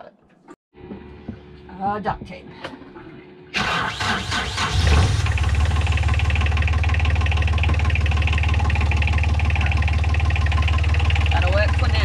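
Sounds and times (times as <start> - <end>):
boat engine cranking and idling: 3.5 - 12.0.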